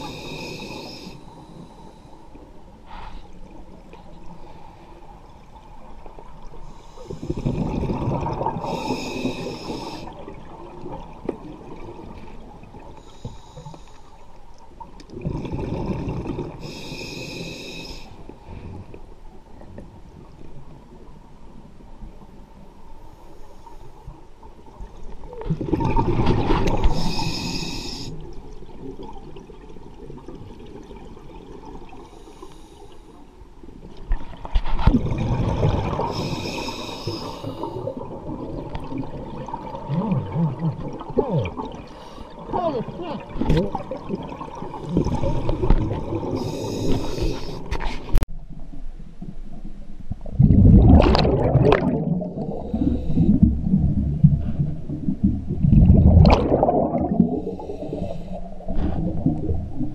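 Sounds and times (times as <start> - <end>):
regulator inhale hiss: 0.0 - 3.4, 6.7 - 7.6, 8.6 - 10.2, 13.0 - 14.3, 16.6 - 18.9, 26.8 - 28.2, 32.0 - 33.3, 36.1 - 38.0, 41.9 - 42.4, 46.2 - 47.8, 52.4 - 53.4, 57.4 - 58.6
exhaled bubbles rushing: 7.3 - 8.8, 25.5 - 27.0, 34.7 - 36.4, 43.2 - 46.6, 50.2 - 59.9.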